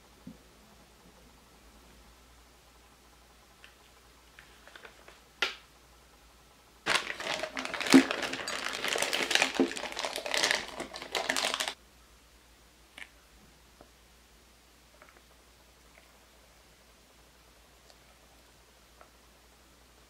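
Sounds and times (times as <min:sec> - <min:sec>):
plastic piping bag crinkling: 0:06.9 - 0:11.8.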